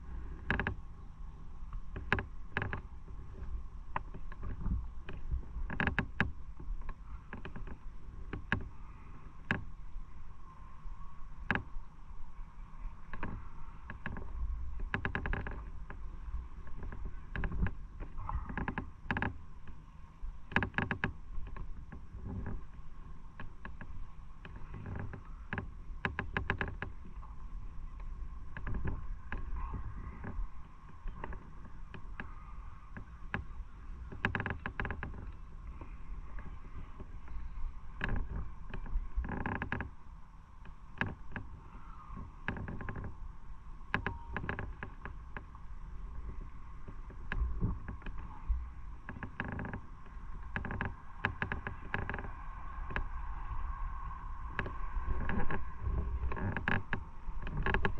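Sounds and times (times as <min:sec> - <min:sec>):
road noise: 0:47.6 - 0:57.9.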